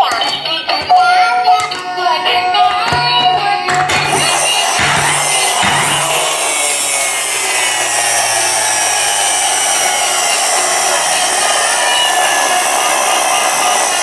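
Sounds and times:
toy engine whirring hiss: 0.0s - 14.0s.

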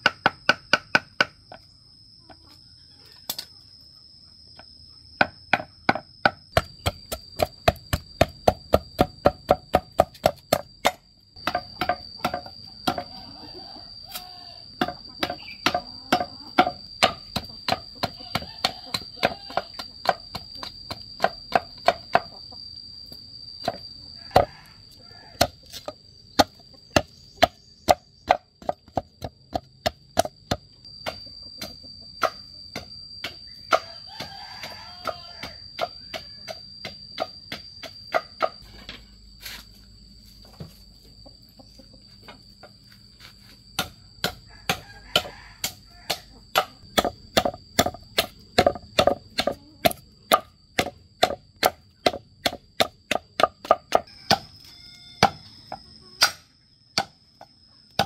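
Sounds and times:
machete chopping bamboo: 5.2s - 13.1s, 14.8s - 22.3s, 25.4s - 38.6s, 43.8s - 54.5s, 56.2s - 57.2s.

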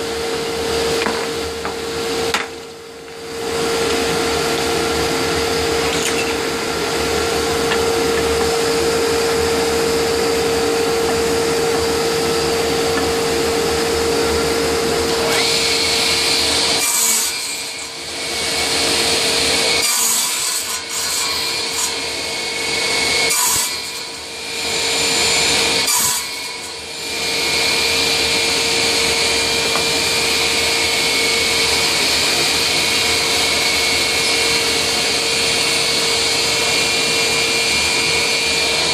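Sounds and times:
saw motor humming: 0.0s - 38.9s
saw blade rasping through wood: 3.9s - 38.9s.

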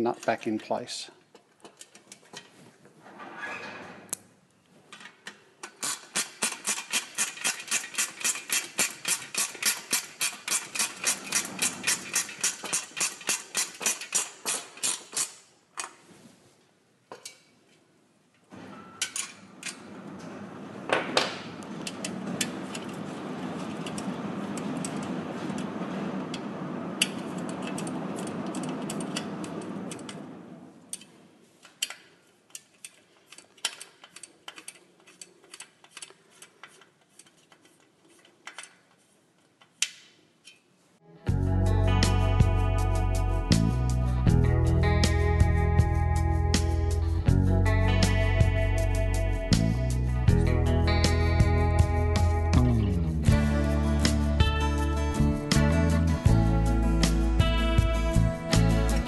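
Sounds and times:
ratchet spanner clicking: 5.7s - 15.4s.

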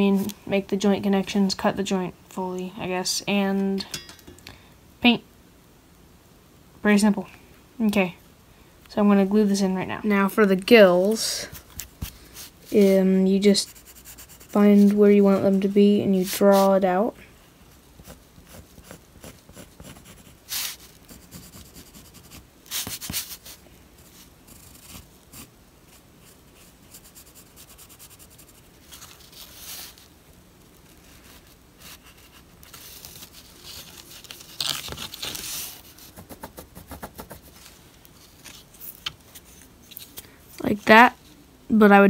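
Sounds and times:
pencil scratching on wood: 13.6s - 15.0s, 18.0s - 23.4s.

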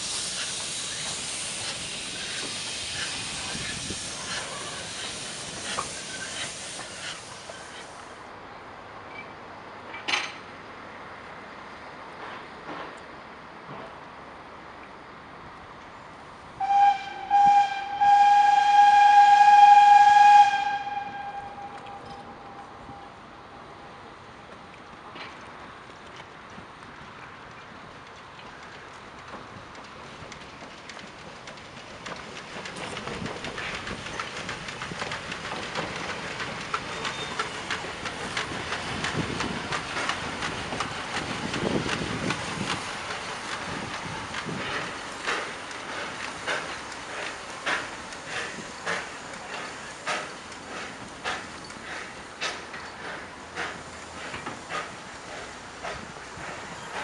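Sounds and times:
steam train rolling past: 0.0s - 57.0s
steam locomotive whistle: 16.6s - 23.2s
wheels clicking over rail joints: 24.2s - 57.0s.

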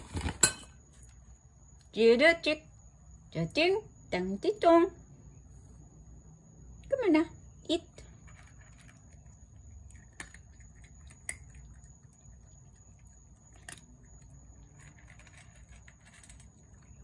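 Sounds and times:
cat crunching dry kibble: 8.1s - 17.0s.

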